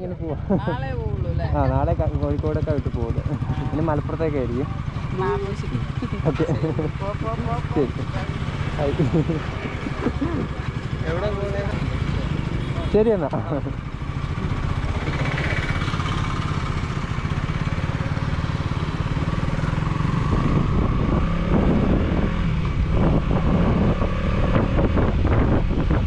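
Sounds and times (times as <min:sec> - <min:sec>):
motorcycle engine riding: 0:00.0 - 0:26.0
wind buffeting microphone: 0:20.1 - 0:26.0.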